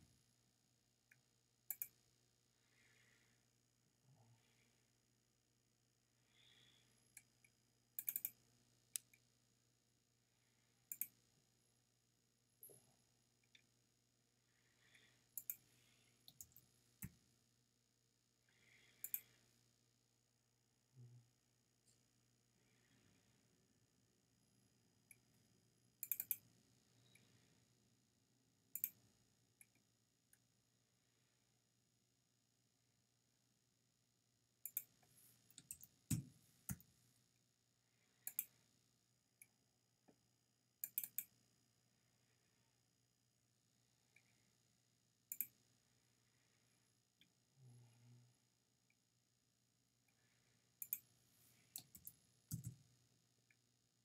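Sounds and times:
computer mouse clicking: 0:01.7 - 0:02.0, 0:08.0 - 0:09.2, 0:10.9 - 0:11.2, 0:15.4 - 0:17.2, 0:18.9 - 0:19.4, 0:26.0 - 0:26.5, 0:28.7 - 0:29.0, 0:34.6 - 0:34.9, 0:35.5 - 0:36.9, 0:38.2 - 0:38.6, 0:40.8 - 0:41.3, 0:45.3 - 0:45.6, 0:50.8 - 0:51.1, 0:51.7 - 0:52.8
faint computer mouse clicks: 0:01.7 - 0:02.0, 0:08.0 - 0:09.2, 0:10.9 - 0:11.2, 0:19.0 - 0:19.3, 0:26.0 - 0:26.4, 0:28.7 - 0:29.0, 0:38.2 - 0:38.6, 0:40.8 - 0:41.3, 0:45.3 - 0:45.6, 0:50.8 - 0:51.1.

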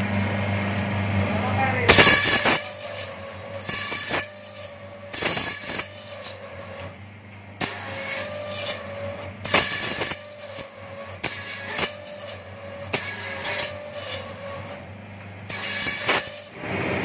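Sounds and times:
electric motor hum: 0:00.0 - 0:17.0
machine cutting bamboo: 0:01.7 - 0:07.0, 0:07.6 - 0:17.0.

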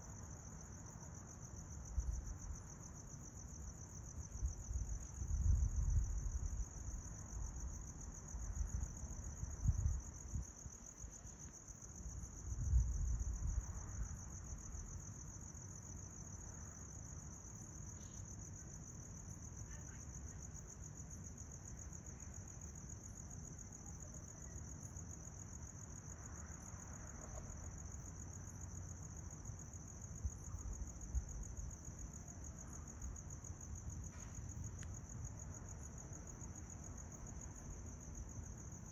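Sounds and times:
crickets trilling: 0:00.0 - 0:38.9
wind rumbling on microphone: 0:04.4 - 0:10.8, 0:12.2 - 0:14.9.

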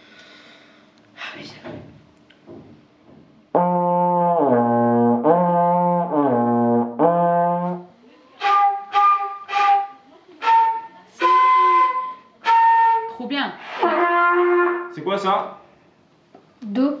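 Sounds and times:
brass mouthpiece buzzing: 0:03.5 - 0:15.0
trombone gliding notes: 0:03.5 - 0:15.1.

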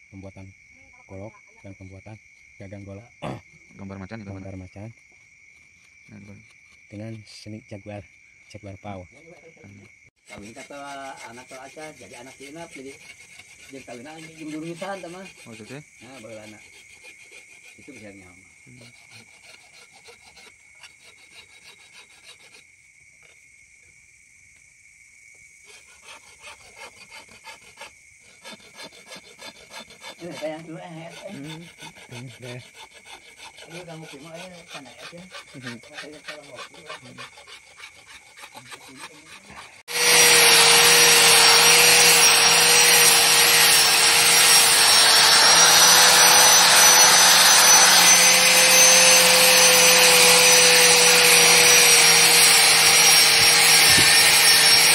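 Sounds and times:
hand file rasping: 0:09.1 - 0:23.4, 0:25.6 - 0:54.9
angle grinder whining: 0:38.5 - 0:54.9.

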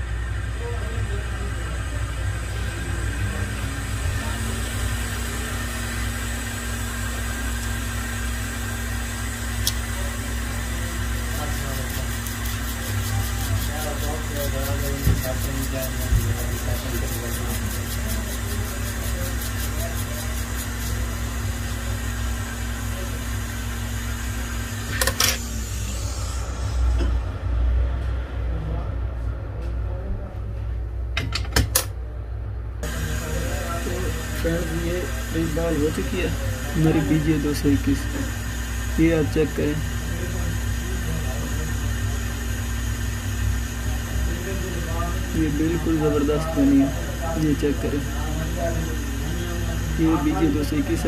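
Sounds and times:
hot air station blowing: 0:00.0 - 0:27.6, 0:32.8 - 0:51.0
low hum: 0:20.9 - 0:31.2.

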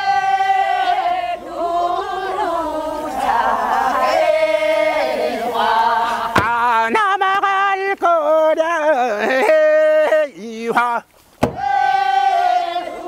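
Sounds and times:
group chanting work song: 0:00.0 - 0:07.0, 0:11.4 - 0:13.0.

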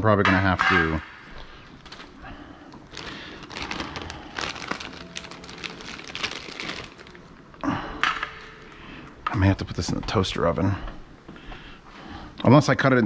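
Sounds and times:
plastic wrapping crinkling: 0:01.6 - 0:07.5.

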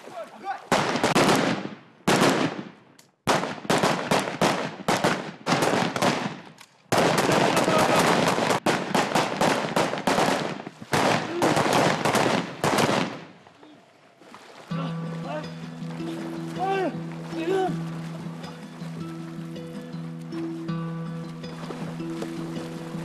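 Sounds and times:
automatic rifle gunfire: 0:00.7 - 0:13.3.

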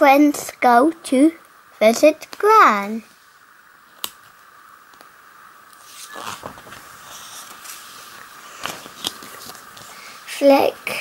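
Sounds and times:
paper page rustling: 0:05.8 - 0:10.0.

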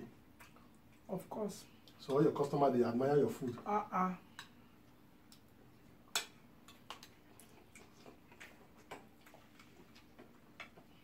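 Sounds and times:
mouths chewing: 0:06.7 - 0:11.0.

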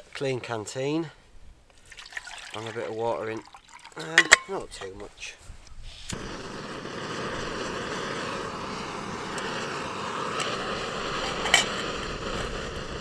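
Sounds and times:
gas stove roaring: 0:06.1 - 0:13.0.

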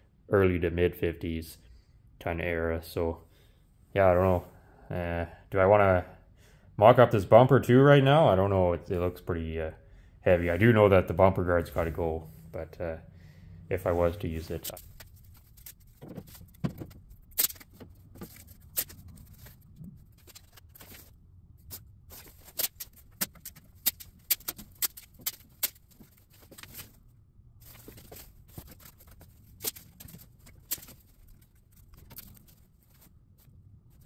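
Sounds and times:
masking tape handling: 0:14.6 - 0:27.0, 0:27.7 - 0:34.0.

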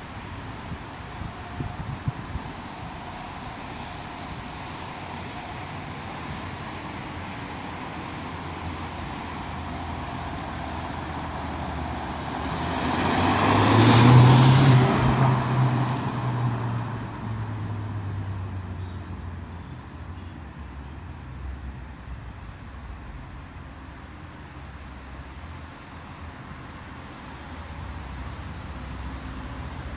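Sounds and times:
car driving past: 0:09.8 - 0:19.0.

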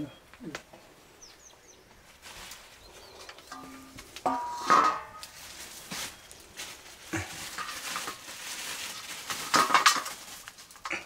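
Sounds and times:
plastic bag crinkling: 0:04.6 - 0:11.0.

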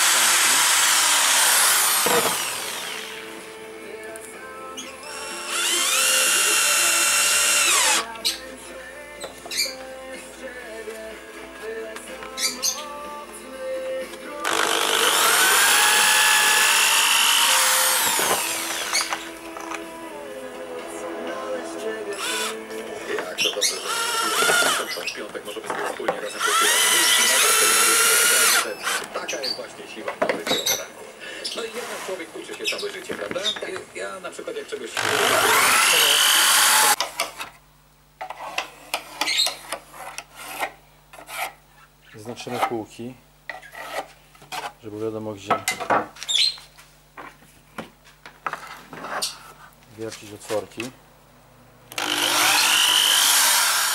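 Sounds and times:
electric drill drilling into wood: 0:00.0 - 0:03.3, 0:05.1 - 0:08.1, 0:14.4 - 0:19.8, 0:22.2 - 0:22.6, 0:23.7 - 0:25.0, 0:26.4 - 0:29.1, 0:35.0 - 0:37.0, 0:51.9 - 0:53.9.

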